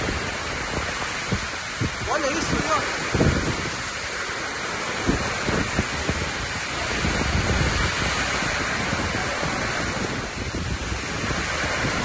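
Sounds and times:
heavy rain: 0:00.0 - 0:12.0
wind thumping on microphone: 0:00.0 - 0:12.0.

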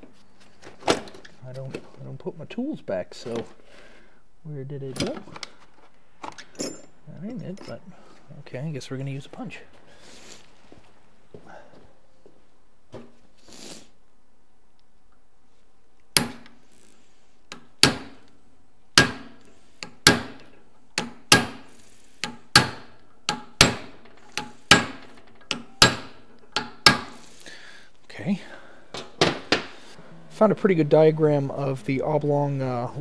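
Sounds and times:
hammer striking metal punch: 0:19.0 - 0:19.4, 0:22.2 - 0:27.2.

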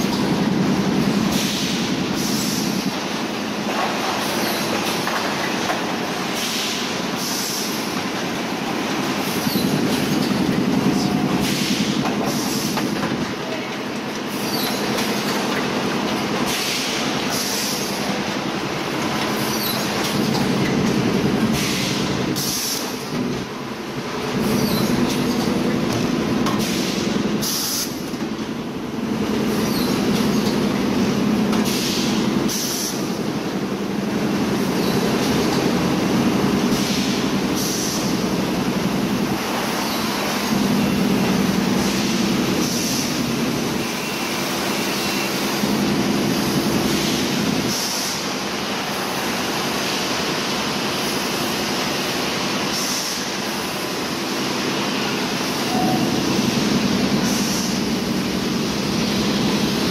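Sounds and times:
machinery hum and rattle: 0:00.0 - 0:59.9
compressed air hisses: 0:36.8 - 0:38.1, 0:57.2 - 0:57.8.

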